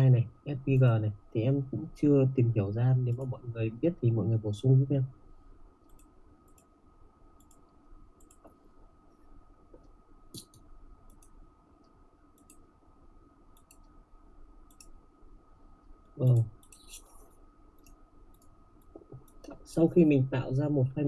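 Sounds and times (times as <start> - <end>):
faint high-pitched hum: 0.0 - 21.0
computer mouse clicks: 5.8 - 6.7, 7.4 - 8.7, 9.7 - 12.7, 13.5 - 14.0, 14.6 - 15.0, 16.0 - 19.6.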